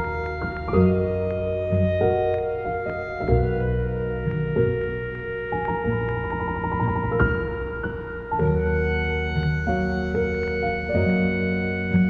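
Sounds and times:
low bass note: 0.0 - 12.0
slow instrumental music: 0.0 - 12.0.

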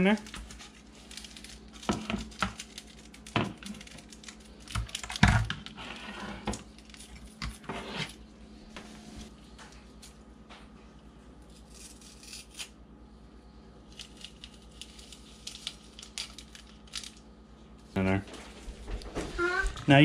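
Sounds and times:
paper packets rustling: 0.0 - 5.2.

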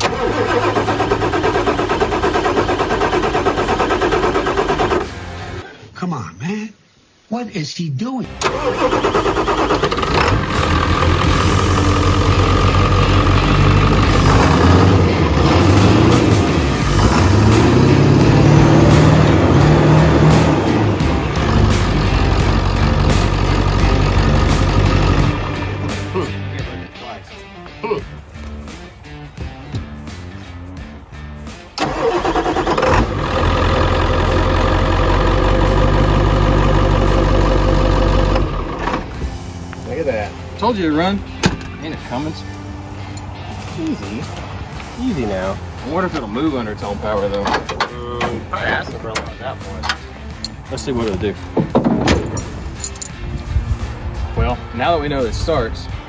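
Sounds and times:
diesel engine starting and idling: 0.0 - 5.6, 8.3 - 26.4, 31.7 - 39.6, 45.1 - 50.6.

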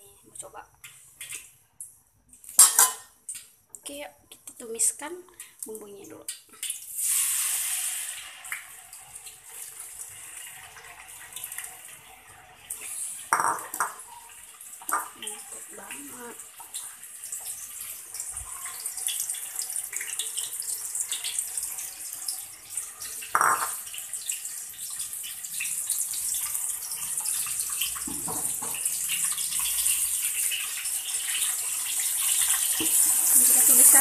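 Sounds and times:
paste frying in hot oil: 4.7 - 34.0.

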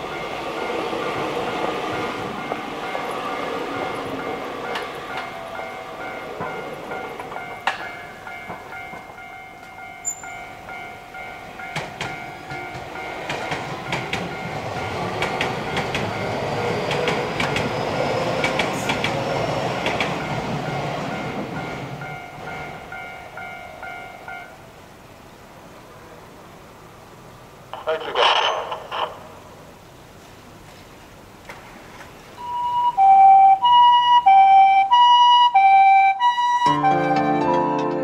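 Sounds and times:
crossing warning bell dinging: 0.0 - 19.0, 19.8 - 24.7, 32.4 - 35.3
train rumbling past: 0.0 - 30.3
wheels clacking over rail joints: 0.1 - 23.4.

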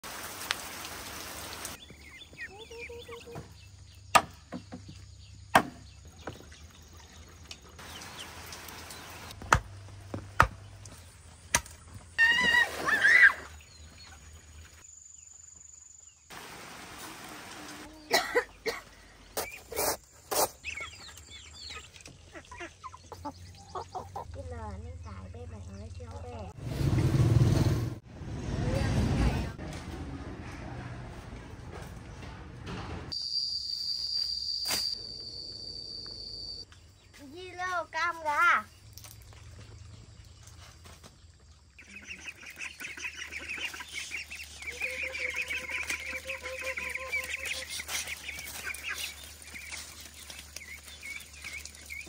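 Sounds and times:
rain falling: 0.0 - 1.8, 7.8 - 9.3, 16.3 - 17.9
high chirping animal calls: 41.8 - 49.8.

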